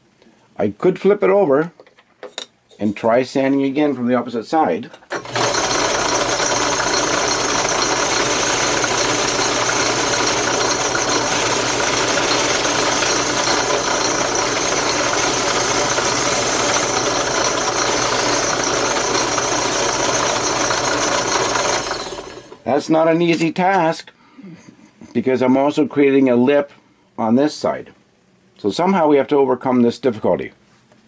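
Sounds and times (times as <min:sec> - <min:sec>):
drill press motor hum: 0:05.1 - 0:22.7
sanding drum rasping wood: 0:05.4 - 0:22.2.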